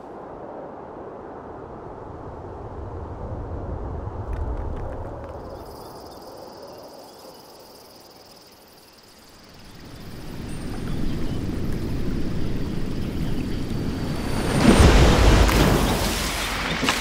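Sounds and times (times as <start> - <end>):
low wind rumble: 0.0 - 17.0
high-pitched insect drone: 5.4 - 14.4.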